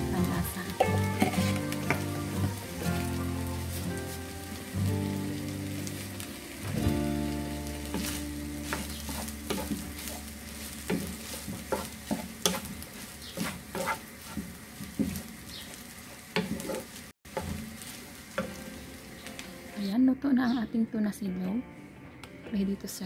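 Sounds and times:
rice sizzling in a frying pan: 0:00.0 - 0:20.0
wooden spatula scraping a pan: 0:00.2 - 0:04.7, 0:06.9 - 0:18.6.

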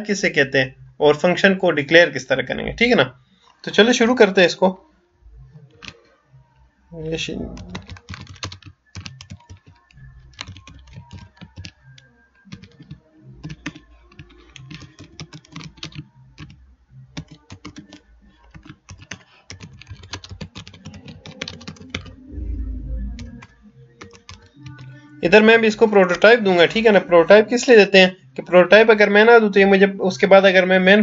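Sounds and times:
keyboard typing: 0:05.7 - 0:06.0, 0:07.4 - 0:25.0.

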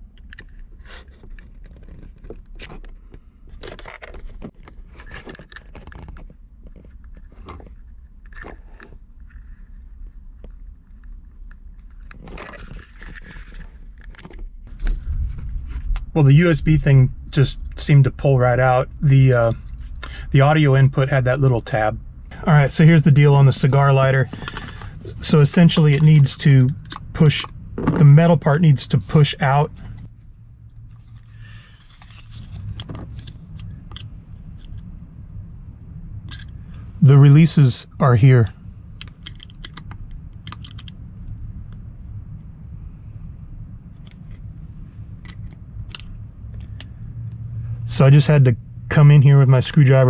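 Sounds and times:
low background rumble: 0:00.0 - 0:50.0
rustling scrape: 0:00.5 - 0:11.2, 0:11.8 - 0:16.0, 0:29.0 - 0:34.8.

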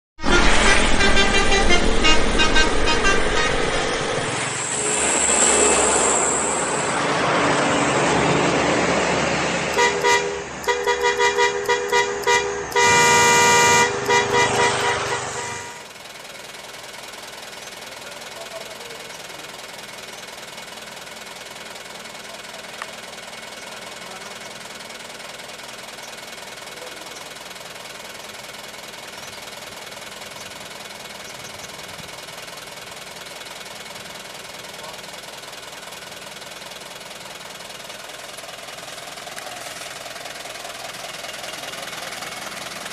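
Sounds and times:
multi-tone truck horn toots: 0:00.2 - 0:07.7, 0:09.5 - 0:16.0
engine hum: 0:00.2 - 0:42.9.

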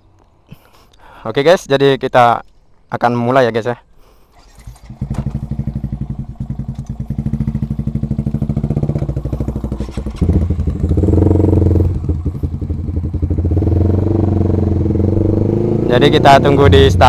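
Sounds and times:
motorcycle engine idling: 0:04.3 - 0:15.2.

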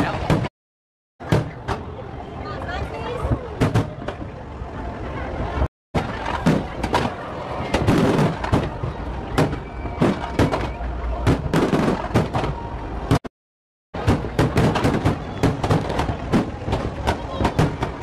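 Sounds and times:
fireworks bangs and crackles: 0:06.0 - 0:13.3, 0:14.0 - 0:18.0.

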